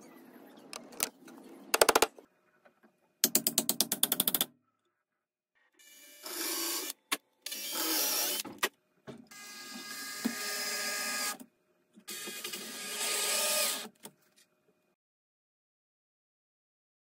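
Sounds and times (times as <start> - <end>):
cordless drill motor whirring: 5.9 - 8.4, 12.1 - 13.9.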